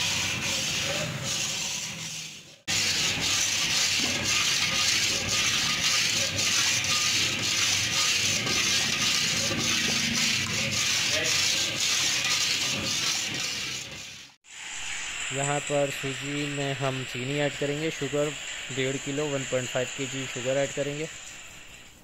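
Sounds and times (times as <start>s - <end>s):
metal spatula scraping steel pan: 0.0s - 14.4s.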